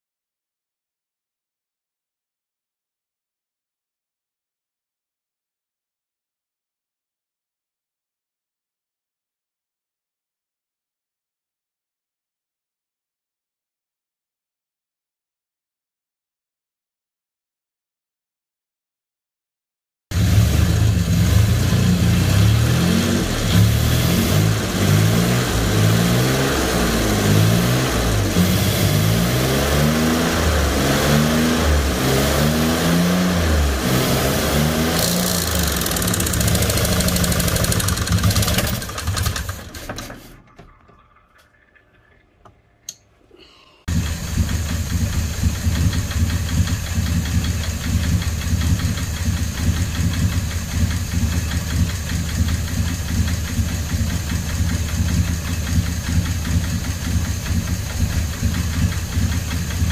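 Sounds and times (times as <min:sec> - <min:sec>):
car engine running: 0:20.1 - 0:39.6, 0:43.9 - 0:59.9.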